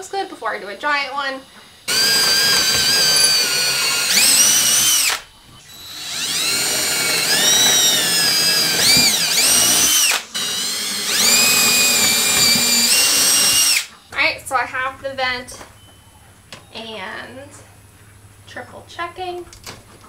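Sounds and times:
cordless drill boring through wood: 0:01.9 - 0:13.9.

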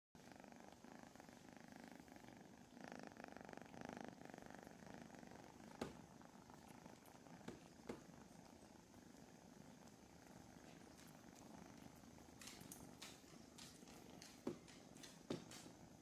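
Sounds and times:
kitten purring: 0:00.2 - 0:16.0.

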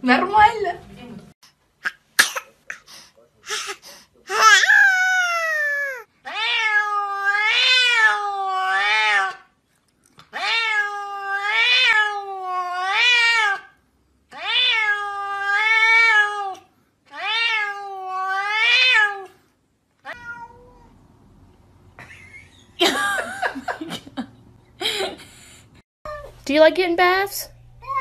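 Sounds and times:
cat meowing: 0:04.3 - 0:09.4, 0:10.3 - 0:13.7, 0:14.3 - 0:19.3, 0:20.0 - 0:21.0.

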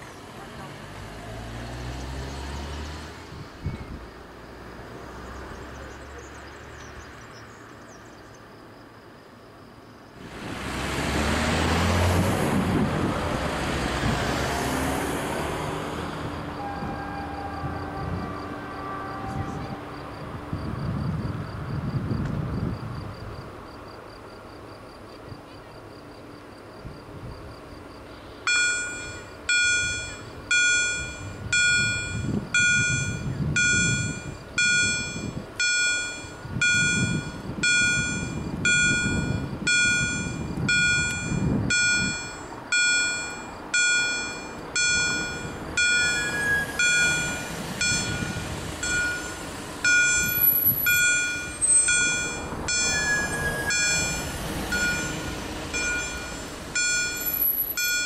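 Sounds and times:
car rumble passing: 0:00.0 - 0:08.1, 0:10.2 - 0:24.0, 0:26.8 - 0:58.0
level crossing bell ringing: 0:28.5 - 0:58.0.

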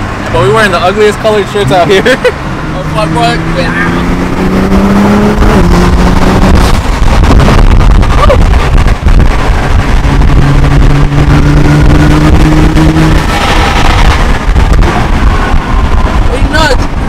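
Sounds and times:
car engine at full throttle: 0:00.0 - 0:17.0.

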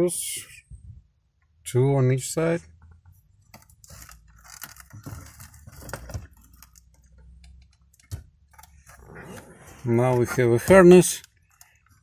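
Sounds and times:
metal and plastic scraping: 0:03.5 - 0:07.3, 0:08.0 - 0:12.0.

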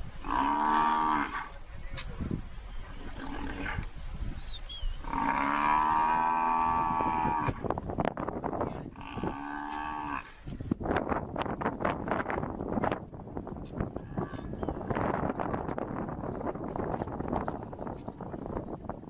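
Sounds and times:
buffalo bellowing: 0:00.2 - 0:01.5, 0:05.0 - 0:07.7, 0:08.9 - 0:10.4.

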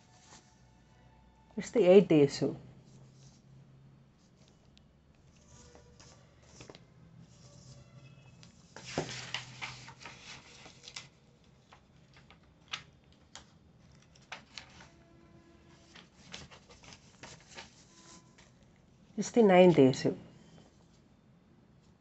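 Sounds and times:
paper pages rustling and flapping: 0:05.3 - 0:15.0, 0:15.8 - 0:18.6.

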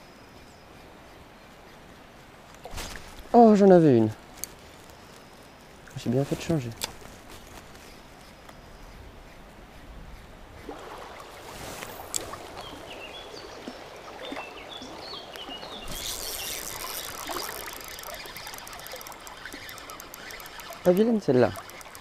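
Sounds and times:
rushing river water: 0:10.6 - 0:22.0
fishing reel cranking: 0:15.9 - 0:22.0.

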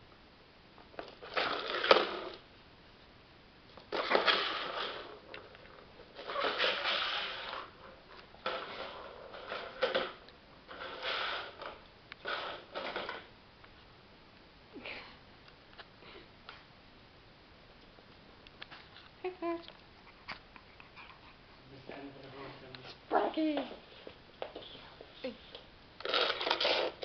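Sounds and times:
toy scraping on floor: 0:03.9 - 0:13.3, 0:25.5 - 0:27.0
ball rattling in toy track: 0:26.0 - 0:27.0.

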